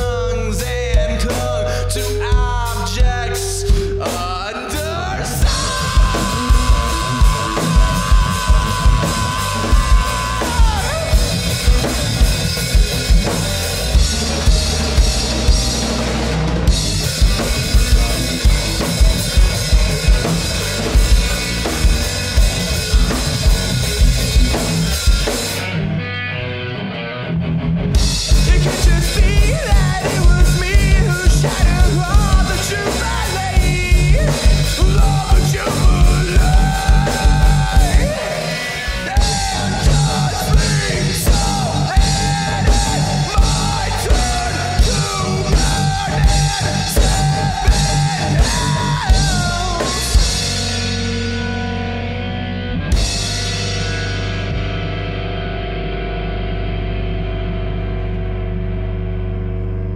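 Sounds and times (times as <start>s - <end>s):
bass guitar: 0.0s - 59.9s
electric guitar: 0.0s - 59.9s
drum kit hits: 5.4s - 25.7s.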